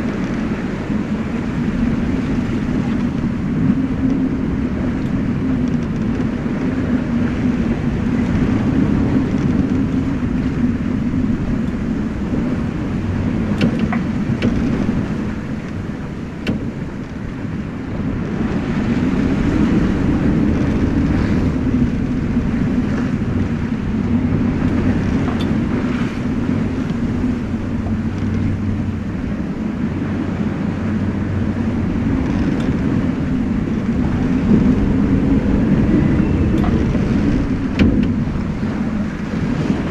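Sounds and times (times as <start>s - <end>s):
rush of wind and sea: 0.0s - 39.9s
wind buffeting microphone: 0.0s - 39.9s
light knocks from boat: 13.0s - 17.4s, 24.1s - 29.3s, 35.8s - 39.9s.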